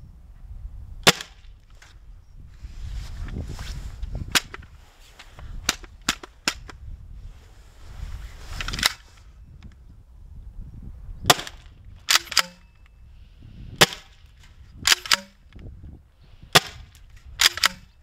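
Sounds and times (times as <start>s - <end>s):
launcher firing pops: 1.0s - 1.5s, 11.3s - 12.7s, 14.8s - 15.4s, 16.5s - 17.9s.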